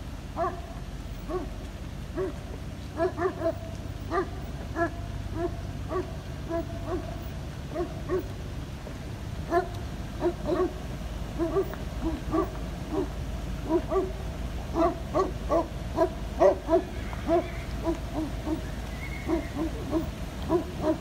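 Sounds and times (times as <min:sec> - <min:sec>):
dog whining and yipping: 0:14.8 - 0:21.0.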